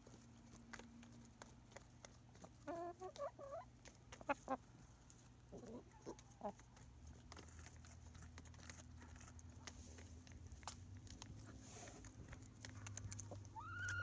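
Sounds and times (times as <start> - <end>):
chickens clucking softly: 1.4 - 7.8, 11.5 - 14.0.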